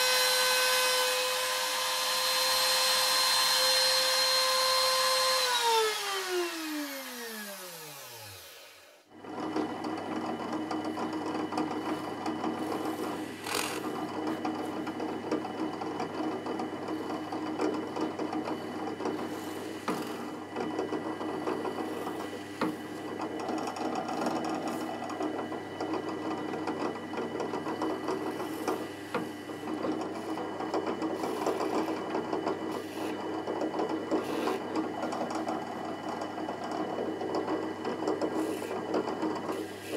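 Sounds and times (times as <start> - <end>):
router spinning down: 0.0 - 9.0, 13.4 - 14.1
drill press running: 0.0 - 39.9.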